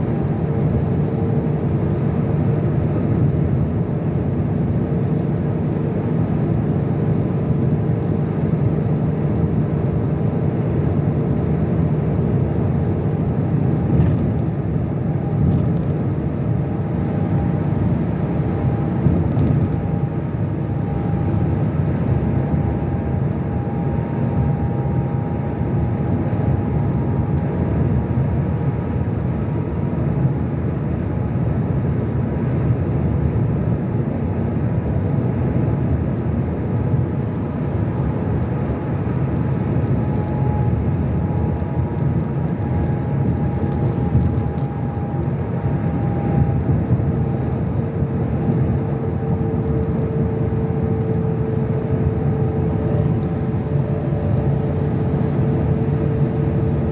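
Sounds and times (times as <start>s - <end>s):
car road and engine noise: 0.0s - 56.9s
faint steady whine: 0.0s - 56.9s.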